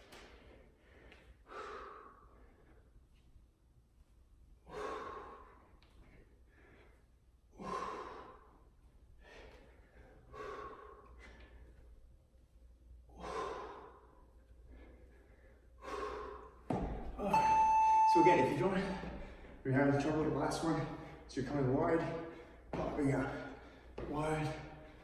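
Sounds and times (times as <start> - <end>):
man breathing hard: 0.0 - 3.2, 4.6 - 12.2, 13.0 - 17.2.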